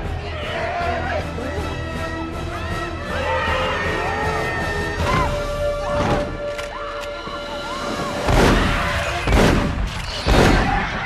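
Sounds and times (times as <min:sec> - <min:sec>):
action music with gliding tones: 0:00.0 - 0:11.0
heavy crashing booms: 0:08.2 - 0:11.0.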